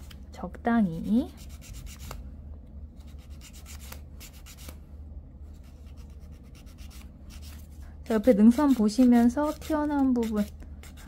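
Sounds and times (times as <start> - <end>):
nail file rubbing on fingernail: 0.9 - 2.2, 3.0 - 4.8, 5.6 - 11.0.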